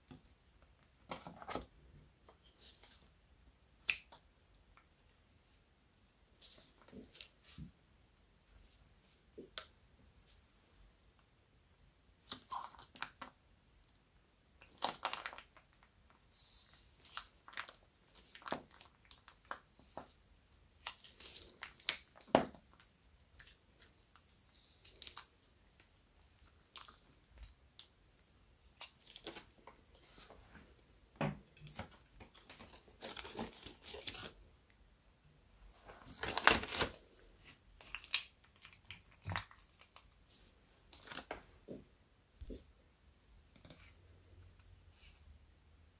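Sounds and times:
plastic piping bag crinkling: 14.6 - 20.2, 20.8 - 29.8, 37.8 - 40.2.

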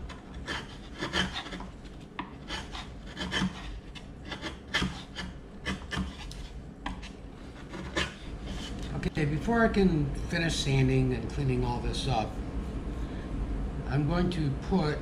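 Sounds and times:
chisel scraping wood: 0.0 - 9.1.

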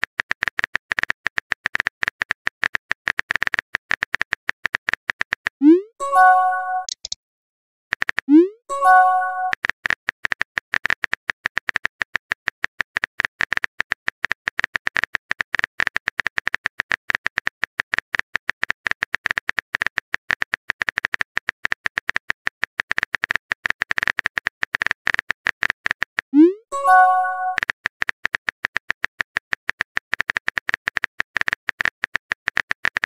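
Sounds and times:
rising blip and chime: 5.6 - 6.9, 26.4 - 27.6
keyboard typing clicks: 5.6 - 7.2, 7.9 - 9.7, 26.4 - 27.7.

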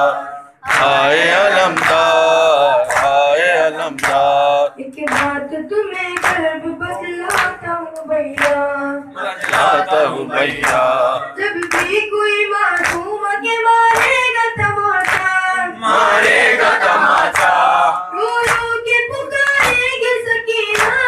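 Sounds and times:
boys chanting a lament in unison: 0.0 - 4.8, 6.5 - 7.6, 9.0 - 12.2, 14.1 - 21.0.

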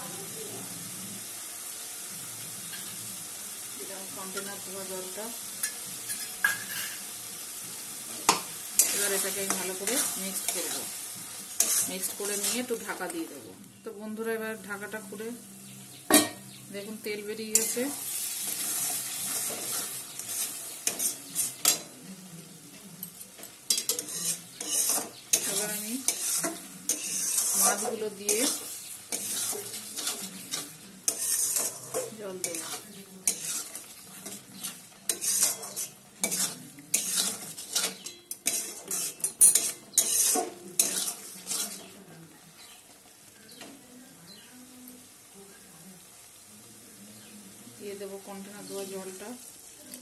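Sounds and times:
paste sizzling in oil: 0.0 - 13.4, 14.6 - 43.4, 45.0 - 50.0
metal spatula scraping pan: 5.6 - 7.1, 8.2 - 13.1, 17.5 - 21.9, 23.7 - 42.0.

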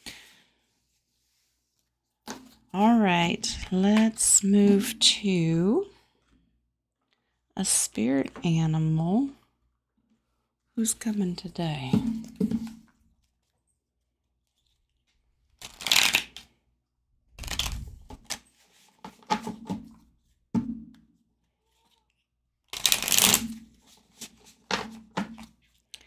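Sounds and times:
cards being shuffled by hand: 14.5 - 16.5, 17.4 - 19.8, 21.6 - 26.0.

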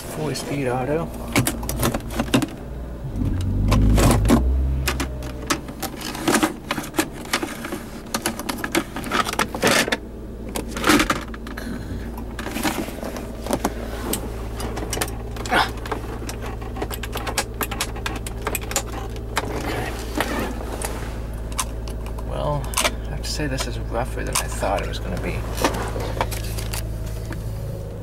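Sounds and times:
car engine idling: 0.0 - 28.0
low rumble: 2.6 - 6.2.

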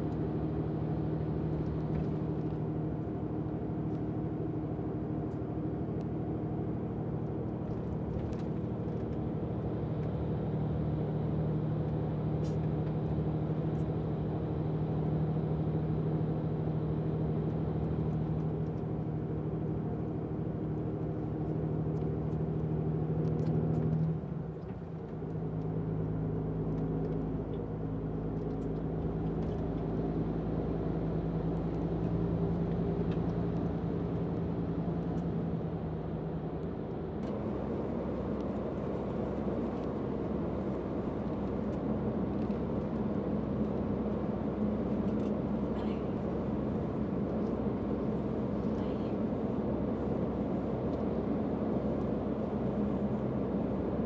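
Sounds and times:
coach engine and road noise: 0.0 - 54.0.

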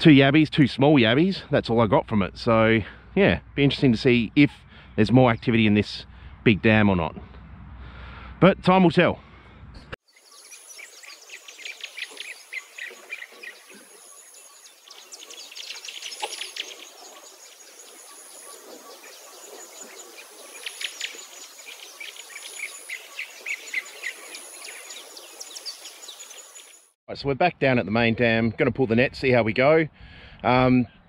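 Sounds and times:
birds chirping: 0.6 - 8.3, 9.8 - 27.0
pulsing insect trill: 10.1 - 26.9.

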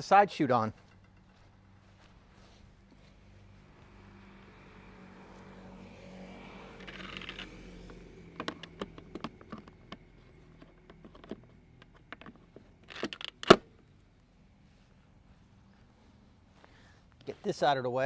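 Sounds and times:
plastic clicks and rattles: 8.3 - 13.6.

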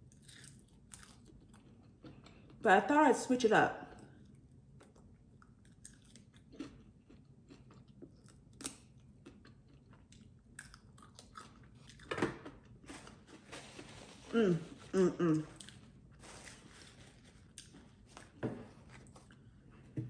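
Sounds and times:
chewing chicken wing: 4.0 - 12.1.

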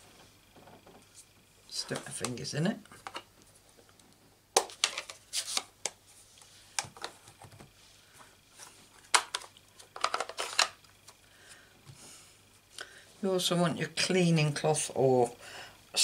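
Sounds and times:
plastic lids clicking and clacking: 9.2 - 10.8.

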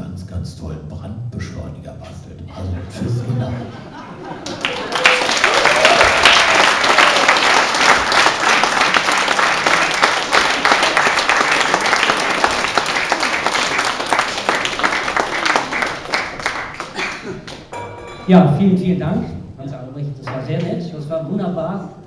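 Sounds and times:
audience applauding: 4.2 - 18.1.

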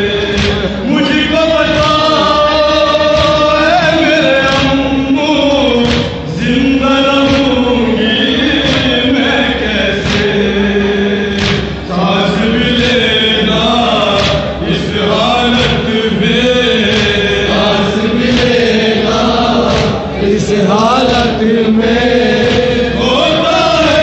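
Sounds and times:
men chanting in unison: 0.0 - 24.0
hands slapping chests: 0.3 - 0.8, 5.8 - 6.3, 10.0 - 10.6, 11.3 - 11.8, 13.9 - 14.8, 16.8 - 17.6, 18.2 - 20.1.

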